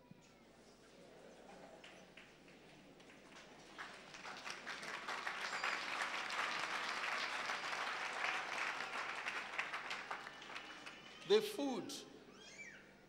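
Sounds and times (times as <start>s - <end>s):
congregation applauding: 3.0s - 11.6s.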